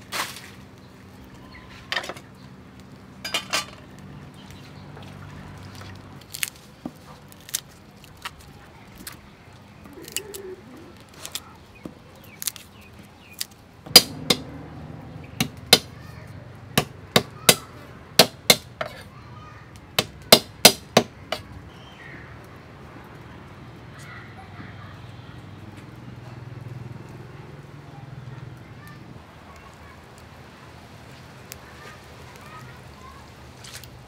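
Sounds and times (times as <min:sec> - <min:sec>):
knife chopping on wooden board: 0:13.9 - 0:14.5.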